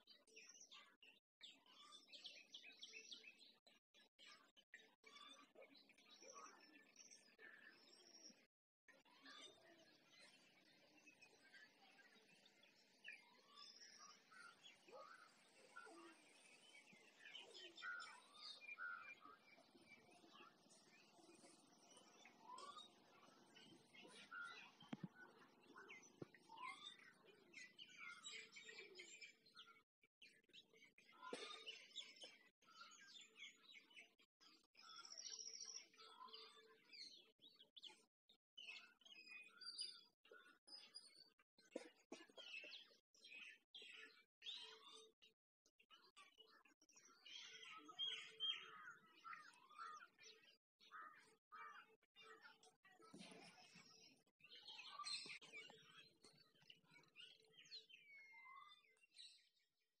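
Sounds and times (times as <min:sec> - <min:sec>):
birds chirping: 0:09.9 - 0:29.4, 0:46.9 - 0:51.9.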